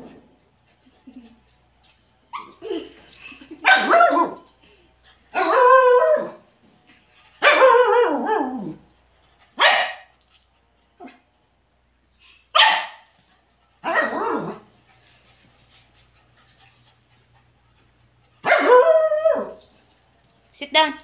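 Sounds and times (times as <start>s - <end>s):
dog howling barks: 5.4s - 6.4s, 7.4s - 8.8s, 13.8s - 14.6s, 18.4s - 19.6s.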